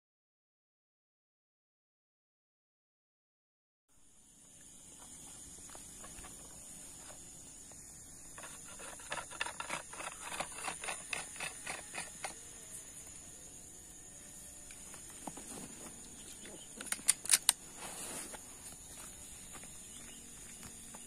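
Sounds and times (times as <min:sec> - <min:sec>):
insects buzzing: 0:03.9 - 0:21.0
sharp clicks: 0:16.7 - 0:17.6.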